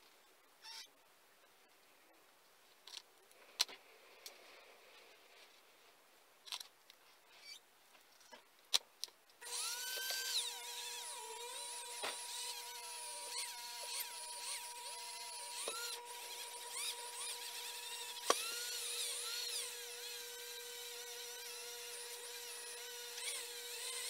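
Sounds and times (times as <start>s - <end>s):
rotary power tool whining: 9.4s - 24.0s.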